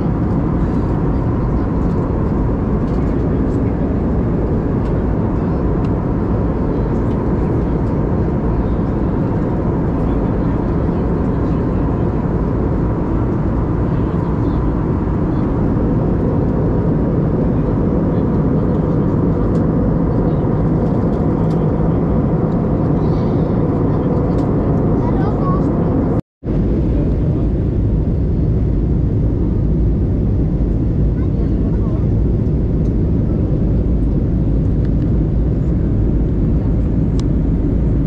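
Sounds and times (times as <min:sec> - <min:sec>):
airplane cabin engine and airflow rush: 0:00.0 - 0:38.0.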